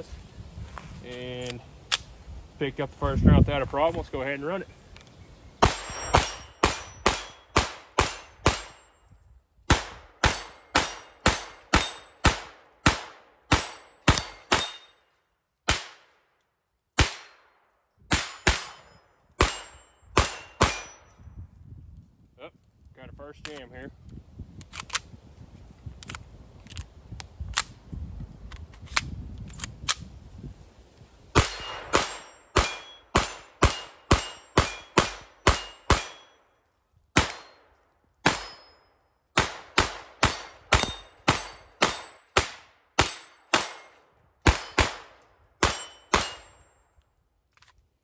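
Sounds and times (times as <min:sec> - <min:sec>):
gun handling clicks: 0:01.1 - 0:02.1, 0:23.4 - 0:23.7, 0:24.6 - 0:25.1, 0:25.9 - 0:27.8, 0:28.5 - 0:30.1, 0:47.0 - 0:47.9
pistol shots: 0:05.6 - 0:08.9, 0:09.7 - 0:14.9, 0:15.7 - 0:16.1, 0:17.0 - 0:17.5, 0:18.1 - 0:21.1, 0:31.3 - 0:36.4, 0:37.2 - 0:38.6, 0:39.4 - 0:46.6.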